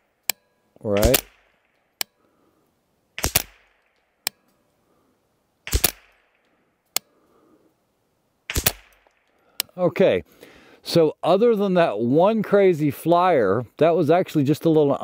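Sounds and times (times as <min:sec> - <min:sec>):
rifle shots: 0:01.0 - 0:01.8, 0:03.2 - 0:04.0, 0:05.6 - 0:06.4, 0:08.5 - 0:09.2.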